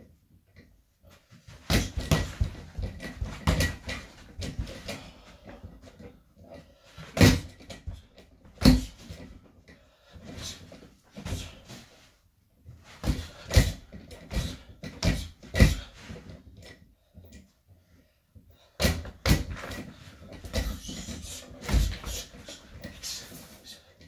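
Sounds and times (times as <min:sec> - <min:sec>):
punches hitting punching bag: 0:01.7 - 0:04.5.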